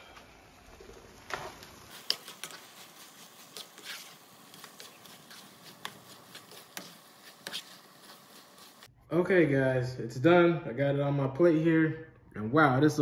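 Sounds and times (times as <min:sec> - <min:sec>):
plastic spatula scraping a skillet: 0:01.3 - 0:08.9.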